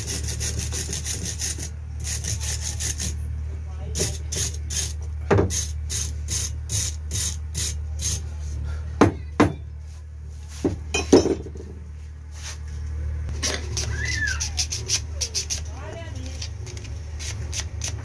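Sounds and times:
wire brush scrubbing metal: 0.0s - 3.2s
steady low hum: 0.0s - 18.0s.

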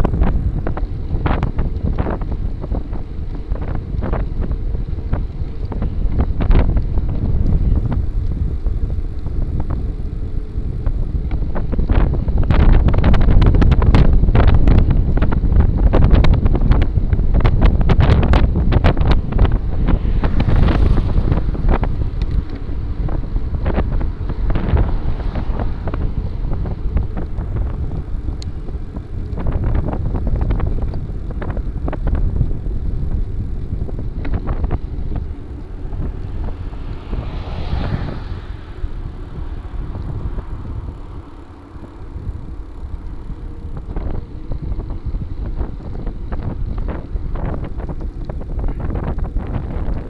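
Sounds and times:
bicycle clicks and rattles: 0.0s - 50.0s
wind buffeting microphone: 0.0s - 50.0s
car passing: 18.0s - 31.0s, 32.6s - 48.0s.

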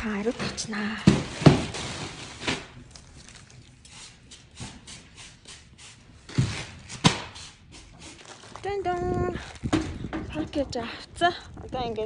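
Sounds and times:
wipe rubbing plastic package: 7.4s - 9.0s.

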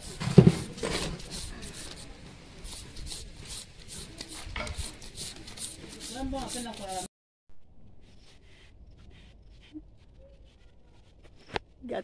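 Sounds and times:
carrot grating on plastic grater: 0.0s - 7.1s.

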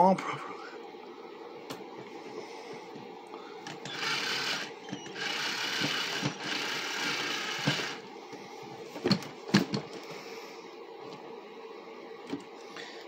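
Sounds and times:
cordless drill whirring: 3.7s - 8.1s.

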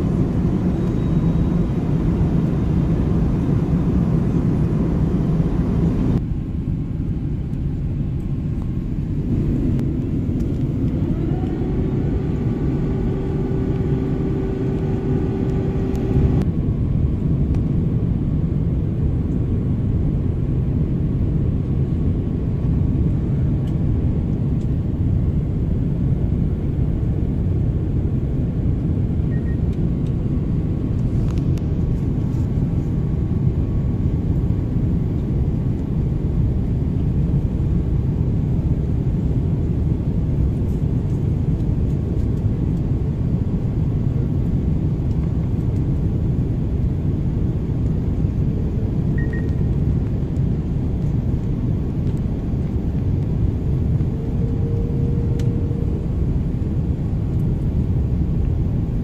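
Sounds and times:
faint steady hum: 0.0s - 18.2s, 19.0s - 59.0s
jet engines rumbling in cabin: 0.0s - 59.0s.

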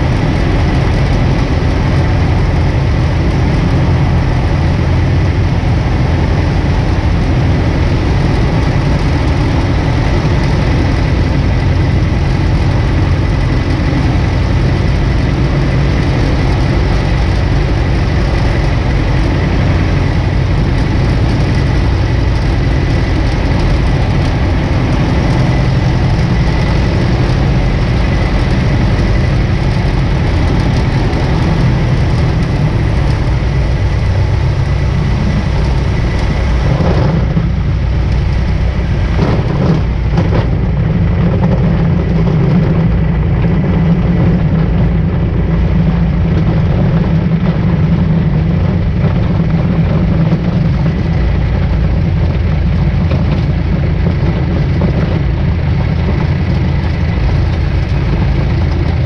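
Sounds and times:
light aircraft engine and propeller: 0.0s - 59.0s.

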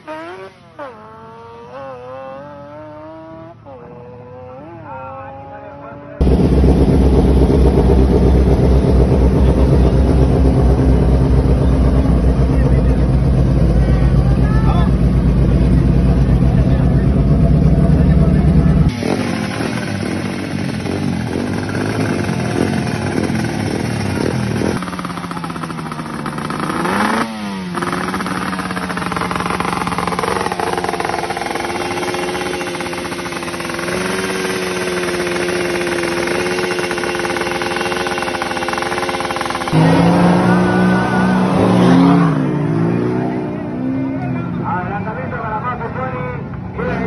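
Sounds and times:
small motorcycle engine revving: 0.0s - 12.7s, 16.8s - 44.2s
pickup truck engine revving: 6.2s - 14.3s, 15.0s - 44.2s.

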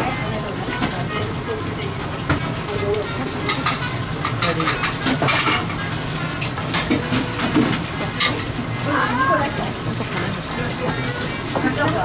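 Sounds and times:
sizzling hiss: 0.0s - 12.0s
faint background voices: 8.4s - 12.0s.

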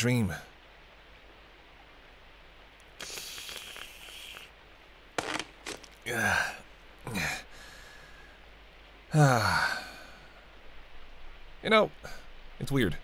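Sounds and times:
mouth clicks: 2.8s - 4.6s.

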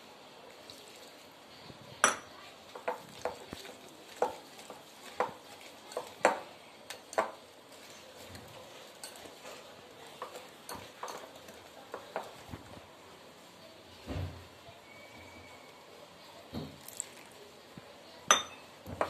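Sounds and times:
whisk clinking against glass bowl: 2.0s - 7.4s, 8.8s - 9.6s, 10.2s - 12.4s, 18.3s - 18.7s.

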